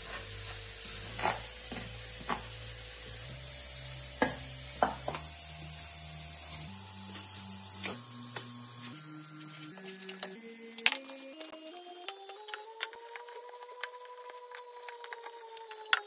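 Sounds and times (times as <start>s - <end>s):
slow background music: 6.3s - 16.0s.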